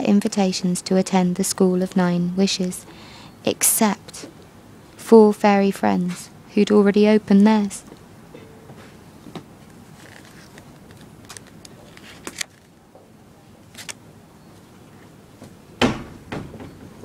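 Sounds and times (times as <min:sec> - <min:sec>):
book pages rustling: 0:08.8 - 0:12.8, 0:13.6 - 0:14.0.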